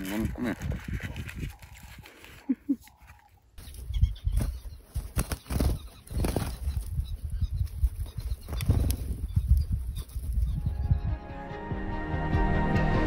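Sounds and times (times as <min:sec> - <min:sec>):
birds flapping wings: 0:04.4 - 0:06.9.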